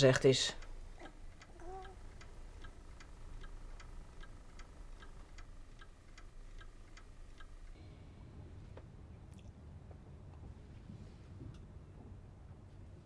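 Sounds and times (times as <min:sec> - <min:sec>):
clock ticking: 0:00.0 - 0:07.8
low steady rumble: 0:00.0 - 0:13.0.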